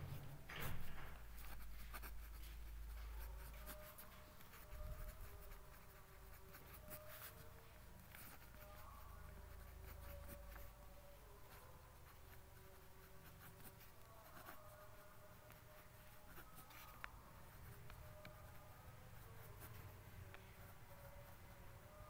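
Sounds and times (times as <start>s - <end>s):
pen scratching on paper: 0.5s - 22.0s.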